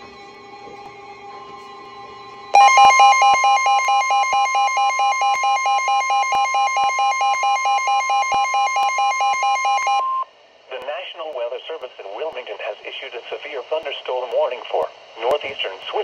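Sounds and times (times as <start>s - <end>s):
pulsing electronic beep: 2.6s - 10.2s
weather radio warning tone: 2.6s - 10.2s
faint steady tones: 2.6s - 16.0s.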